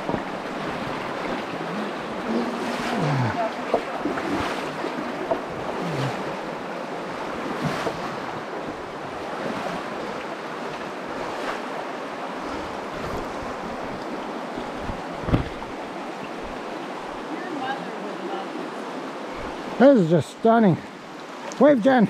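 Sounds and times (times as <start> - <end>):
river flowing over rocks: 0.0 - 20.1
wind buffeting microphone: 12.4 - 16.7
sharp thump: 14.8 - 15.7.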